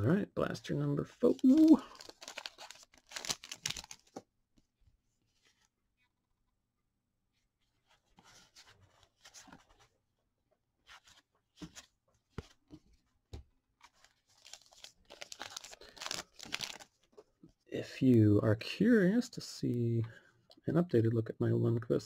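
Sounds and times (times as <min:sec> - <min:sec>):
cards and wrappers rustling: 0:01.2 - 0:04.2, 0:13.8 - 0:17.3.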